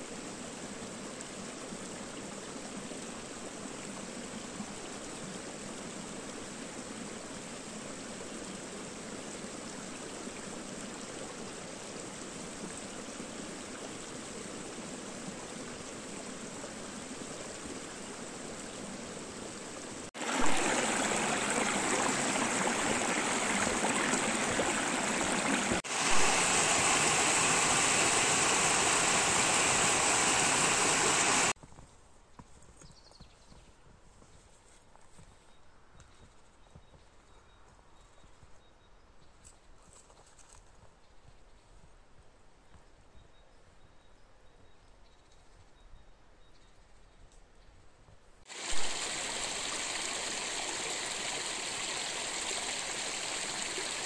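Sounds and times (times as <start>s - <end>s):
rushing stream water: 0.0s - 31.6s, 48.5s - 54.0s.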